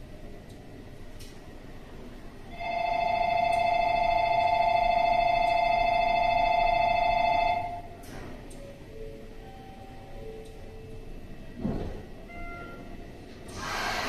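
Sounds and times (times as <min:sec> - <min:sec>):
station departure bell ringing: 0:02.5 - 0:08.0, 0:08.6 - 0:11.5, 0:12.2 - 0:13.1.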